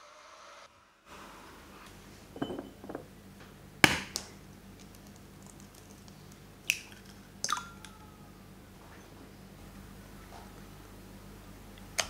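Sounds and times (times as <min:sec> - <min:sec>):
eggshell cracking: 0:04.1 - 0:07.7.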